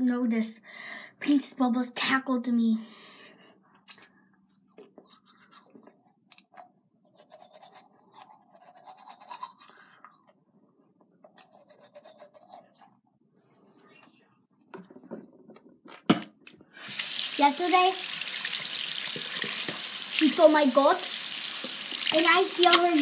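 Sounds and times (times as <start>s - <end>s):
toothbrush scrubbing teeth: 5.0s - 6.0s, 7.1s - 10.2s, 11.3s - 13.0s, 16.9s - 23.0s.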